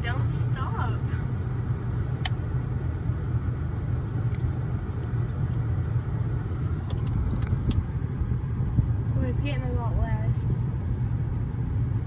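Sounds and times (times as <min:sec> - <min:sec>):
low vehicle rumble: 0:00.0 - 0:12.0
sharp clicks: 0:06.8 - 0:07.9.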